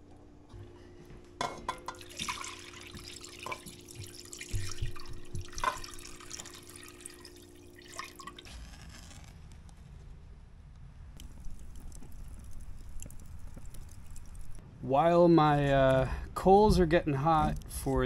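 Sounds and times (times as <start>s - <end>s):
steady low hum: 0.0s - 8.4s, 9.4s - 18.0s
liquid pouring and splashing: 1.9s - 9.2s, 11.2s - 14.6s.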